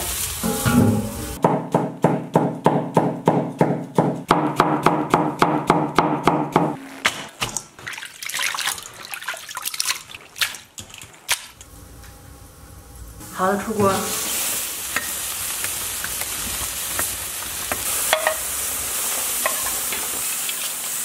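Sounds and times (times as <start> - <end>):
hands sloshing water in metal bowl: 7.5 - 11.6.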